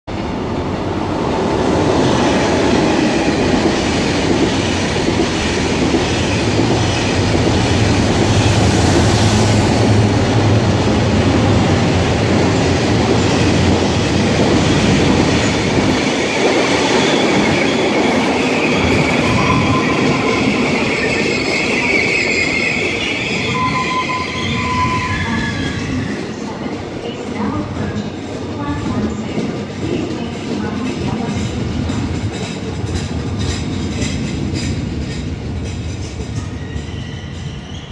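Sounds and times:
train wheel clatter: 25.5s - 37.9s
brake and wheel squeal: 36.5s - 37.9s.

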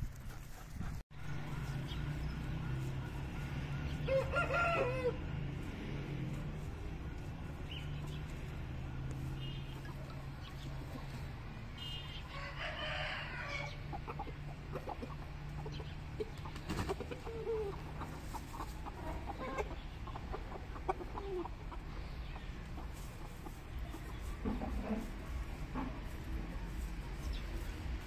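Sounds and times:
chickens clucking: 0.5s - 28.0s
rooster crowing: 3.9s - 5.6s, 12.3s - 13.8s.

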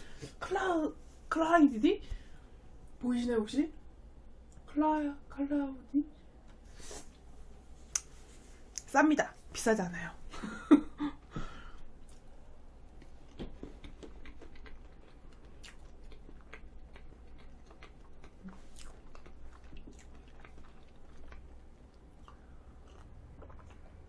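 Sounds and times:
wet mouth clicks chewing: 13.0s - 24.0s.

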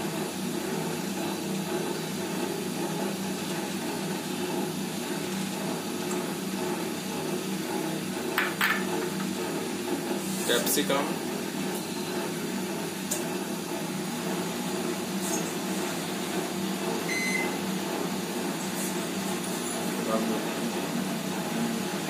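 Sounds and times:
machine humming: 11.1s - 22.0s.

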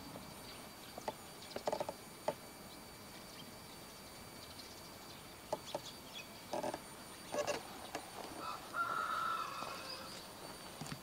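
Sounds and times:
faint outdoor background: 0.0s - 11.0s
fowl calling: 8.3s - 10.2s.

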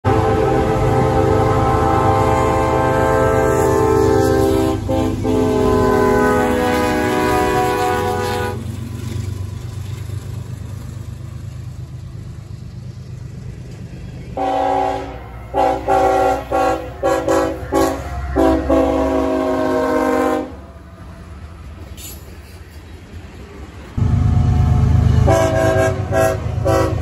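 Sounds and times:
locomotive air horn: 0.0s - 8.7s, 14.4s - 20.7s, 24.0s - 27.0s
train rumble: 0.0s - 27.0s.

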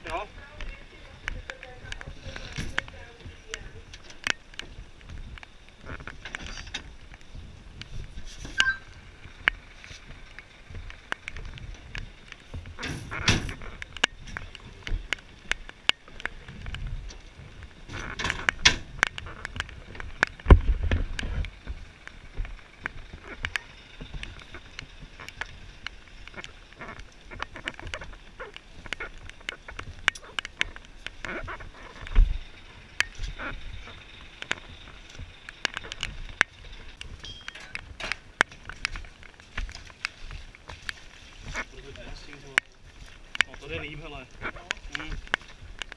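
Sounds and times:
tools clattering on metal roof: 12.8s - 13.6s
sharp ticks: 17.6s - 40.1s.

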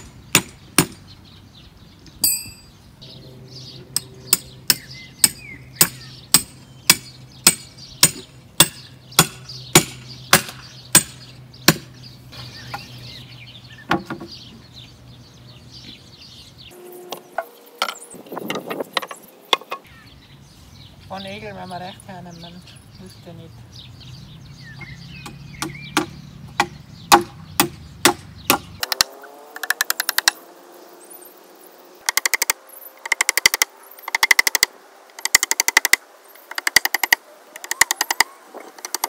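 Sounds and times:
ringing metallic clink: 2.2s - 2.7s.

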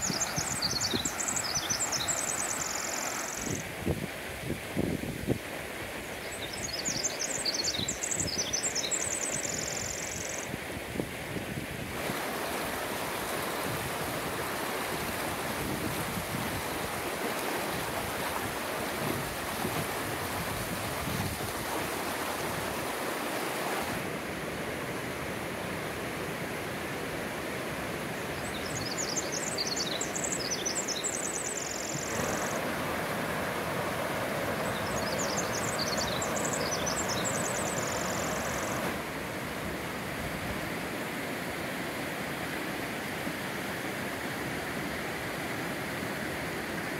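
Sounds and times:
high rapid bird twittering: 0.0s - 3.6s, 6.4s - 10.5s, 34.6s - 38.7s
creek rushing over rocks: 0.0s - 46.9s.

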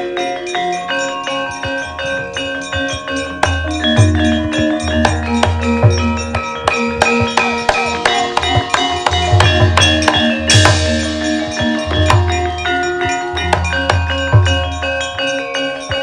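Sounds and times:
metallophones and gongs ringing: 0.0s - 16.0s
hand drum strokes: 2.1s - 15.2s
metallic clash: 3.4s - 15.2s.

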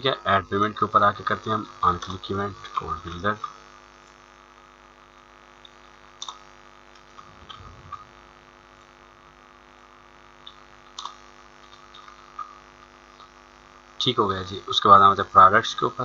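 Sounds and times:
electrical hum: 0.0s - 16.0s
computer mouse clicks: 6.2s - 6.4s, 10.5s - 12.6s.

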